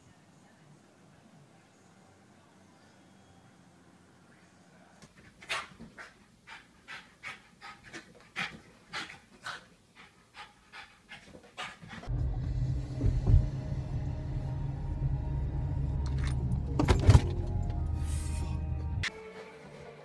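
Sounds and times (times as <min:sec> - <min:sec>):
dog panting: 0:05.2 - 0:12.1
car cabin rumble: 0:12.1 - 0:14.8.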